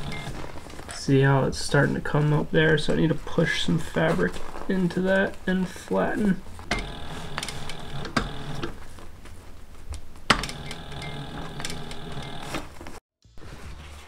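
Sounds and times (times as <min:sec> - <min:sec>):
sewing machine stitching: 0:00.0 - 0:00.4, 0:06.7 - 0:08.8, 0:10.3 - 0:12.8.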